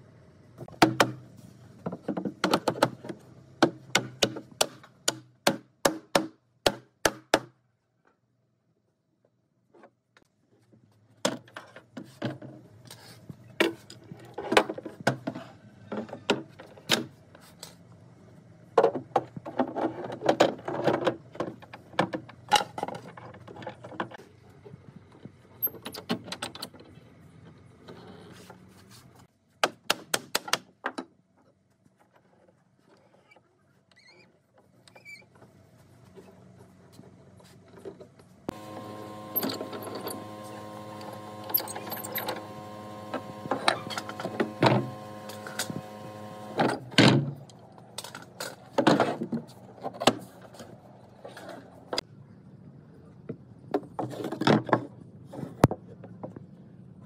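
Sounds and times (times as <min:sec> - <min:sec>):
handling noise: 0:38.5 - 0:46.9.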